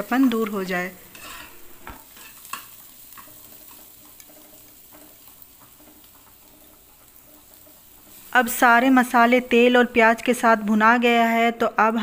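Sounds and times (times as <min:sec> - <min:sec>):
oil sizzling: 0:00.0 - 0:12.0
metal spatula scraping pan: 0:00.3 - 0:08.5.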